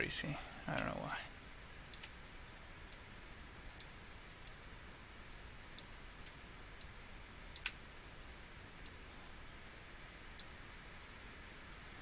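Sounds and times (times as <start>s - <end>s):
low steady hiss: 0.0s - 12.0s
computer mouse clicks: 1.9s - 2.2s, 5.7s - 7.8s.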